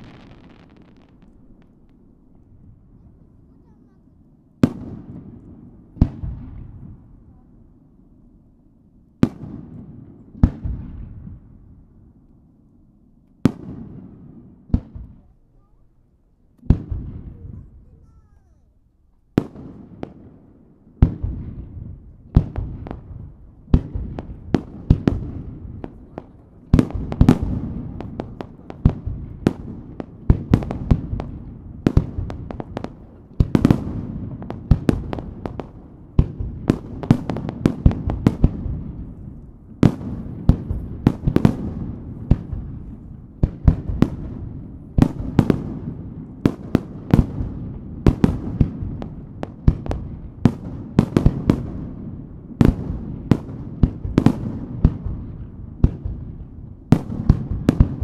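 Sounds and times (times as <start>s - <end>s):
firework shells bursting: 0.0s - 2.0s.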